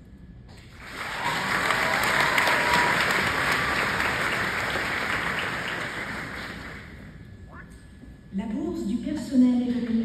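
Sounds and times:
audience applauding: 0:00.8 - 0:07.1.

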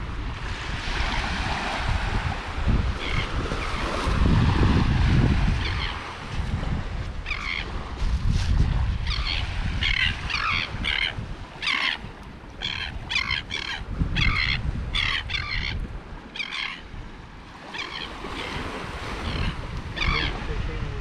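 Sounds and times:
wind rumbling on microphone: 0:00.0 - 0:21.0
bird calling: 0:03.0 - 0:03.9, 0:05.6 - 0:06.1, 0:07.2 - 0:07.8, 0:09.0 - 0:16.9, 0:17.5 - 0:20.5.

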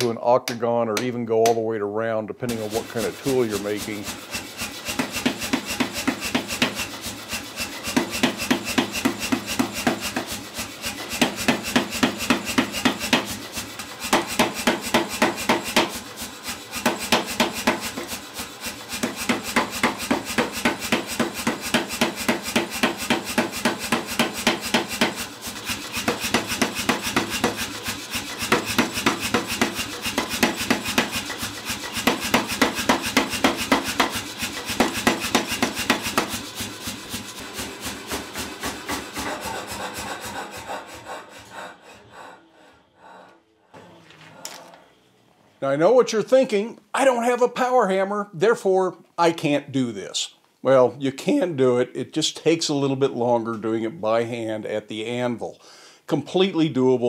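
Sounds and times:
power hammer pounding steel: 0:02.4 - 0:41.6
machine hum: 0:02.5 - 0:45.5.

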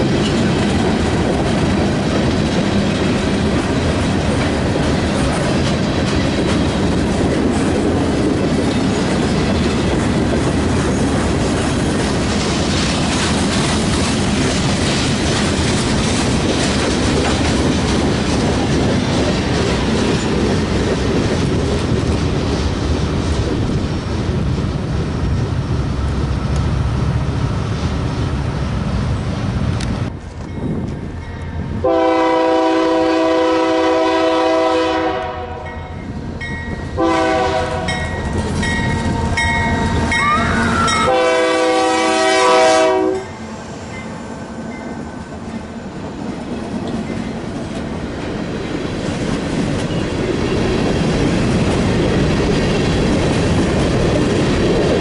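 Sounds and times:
freight cars clattering on rails: 0:00.0 - 0:27.2, 0:36.0 - 0:41.4
locomotive air horn blasts: 0:31.8 - 0:35.8, 0:37.0 - 0:38.0, 0:40.2 - 0:43.4.

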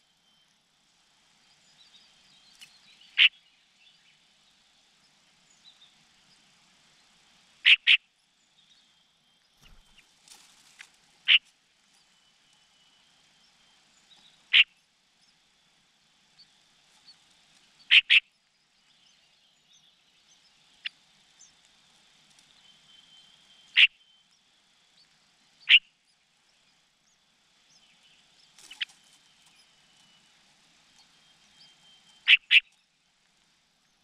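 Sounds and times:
faint thin high whine: 0:00.0 - 0:34.0.

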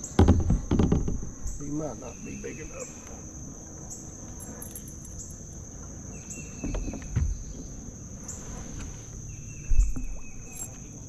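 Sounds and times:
dull thumps: 0:00.0 - 0:01.8, 0:06.6 - 0:07.8
insects trilling: 0:00.0 - 0:11.0
low buzzing insect call: 0:00.0 - 0:11.0.

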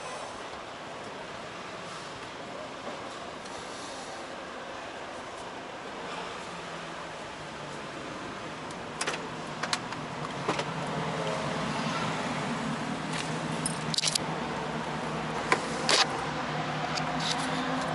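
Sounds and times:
metallic clicks and jingling: 0:13.6 - 0:14.2.

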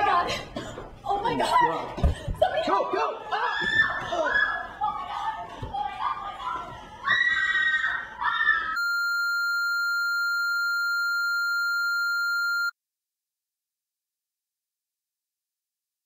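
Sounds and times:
broadcast test tone: 0:08.8 - 0:12.7.

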